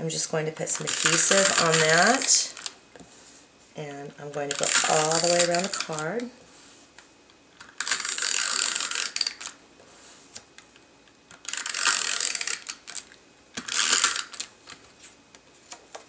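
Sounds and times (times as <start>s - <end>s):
tape runner rolling on cardstock: 0.6s - 2.7s.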